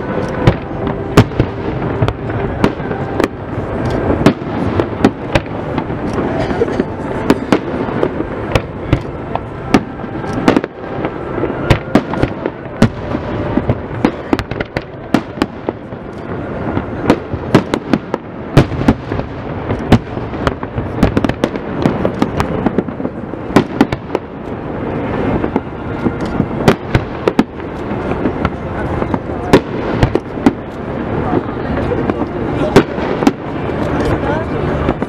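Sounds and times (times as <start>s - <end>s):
background noise: 0.0s - 35.0s
fireworks bangs and cracks: 0.0s - 35.0s.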